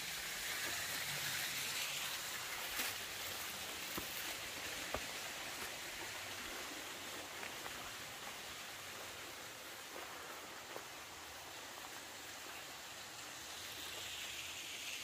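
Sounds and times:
running water hiss: 0.0 - 15.0.

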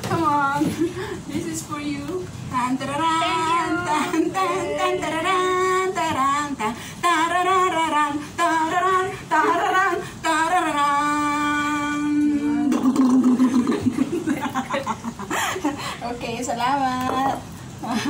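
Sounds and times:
woman singing unaccompanied: 0.0 - 14.0.

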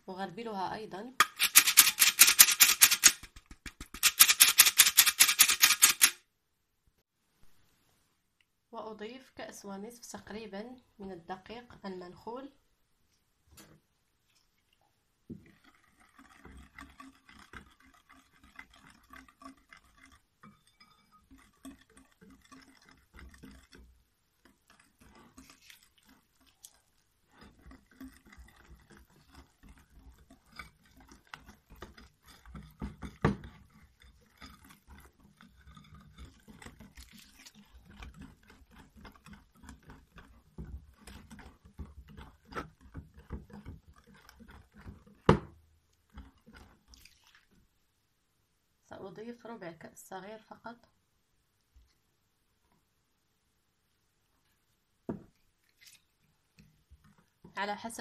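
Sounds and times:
whisk scraping in glass bowl: 1.2 - 6.1, 15.3 - 47.7, 55.2 - 58.0.

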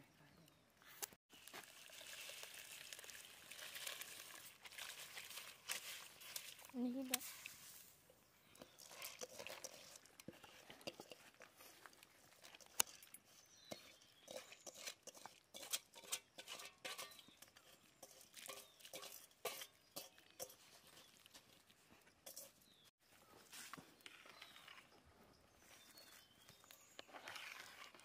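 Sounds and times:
rice splashing into water: 1.3 - 7.9.

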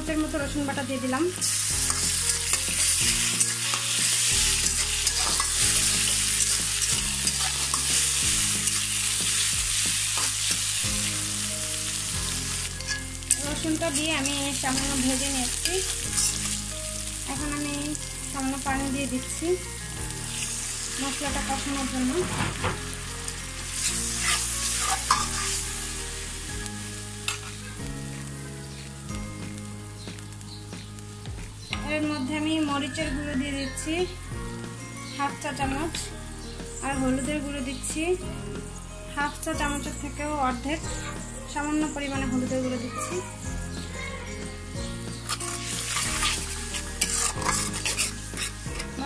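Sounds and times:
onions sizzling in hot oil: 0.0 - 49.0
spatula stirring and scraping: 1.4 - 11.2, 12.0 - 16.8, 20.3 - 25.8, 27.2 - 27.8, 45.1 - 49.0.

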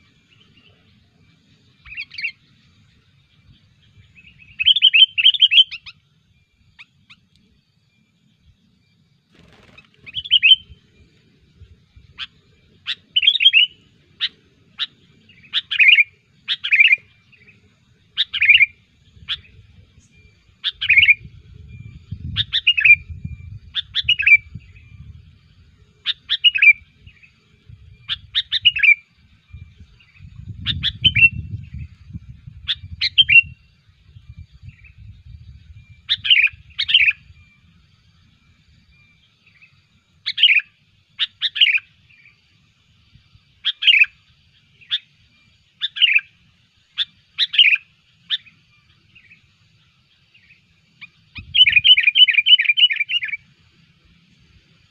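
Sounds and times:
bird chirping: 0.0 - 54.9.

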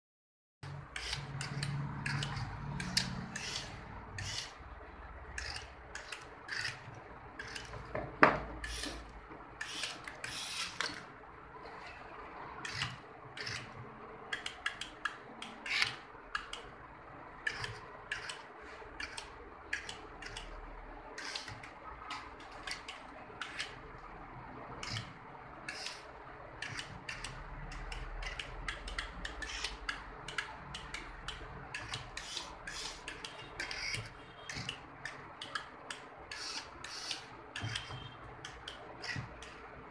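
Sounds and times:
small electric motors whirring: 0.7 - 4.6, 9.6 - 11.0.

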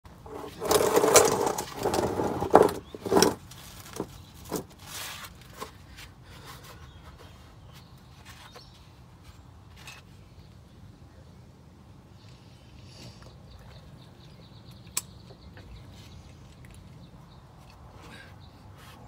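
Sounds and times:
plastic pan scraping across asphalt: 0.2 - 5.8.

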